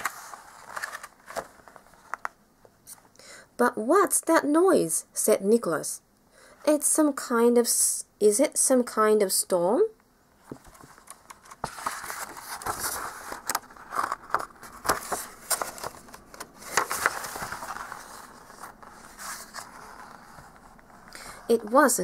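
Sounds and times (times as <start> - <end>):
book pages rustling and turning: 0.0 - 2.4, 10.4 - 22.0.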